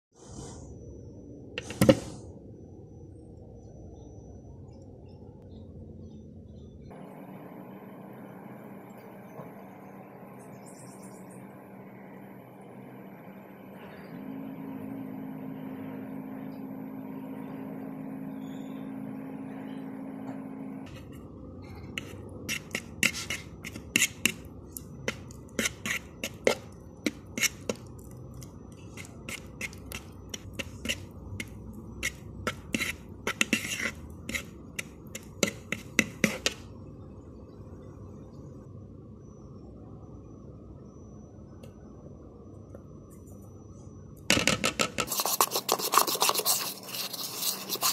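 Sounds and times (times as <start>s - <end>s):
low hum with held tone: 0.6s - 47.9s
fork scraping a mixing bowl: 20.9s - 36.6s, 44.8s - 47.9s.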